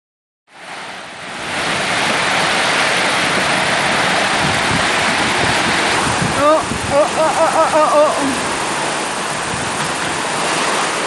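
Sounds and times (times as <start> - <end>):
heavy rain on a corrugated roof: 0.5 - 11.0
wind: 0.5 - 11.0.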